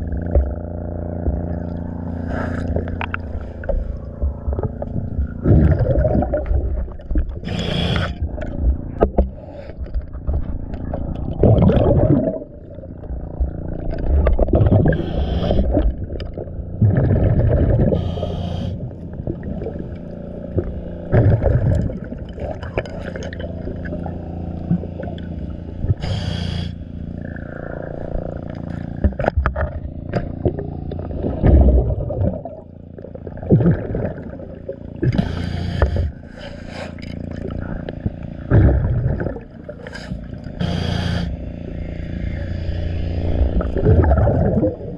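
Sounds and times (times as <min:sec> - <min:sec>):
gurgling exhaust bubbles: 0:00.0 - 0:44.9
steady low underwater drone: 0:00.0 - 0:44.9
diver breathing through regulator: 0:02.0 - 0:04.5, 0:07.4 - 0:08.5, 0:14.8 - 0:16.0, 0:17.7 - 0:19.2, 0:25.9 - 0:28.9, 0:35.1 - 0:38.1, 0:39.8 - 0:43.8.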